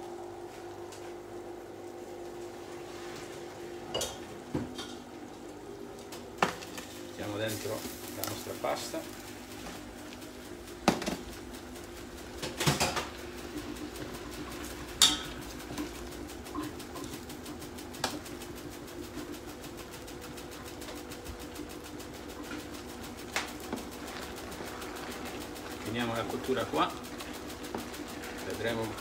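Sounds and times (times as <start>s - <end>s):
steady low hum: 0.0s - 29.0s
pots and tongs clattering: 12.4s - 13.1s, 15.0s - 15.4s.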